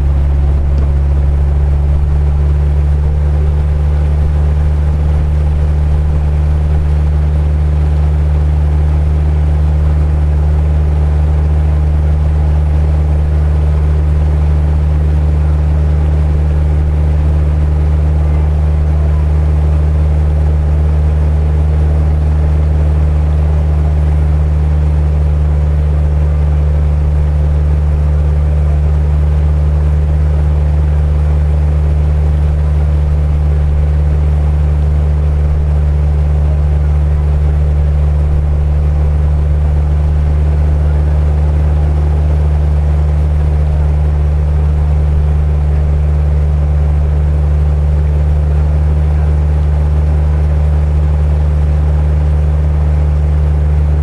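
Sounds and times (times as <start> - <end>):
boat engine droning: 0.0 - 54.0
water splashing along hull: 0.0 - 54.0.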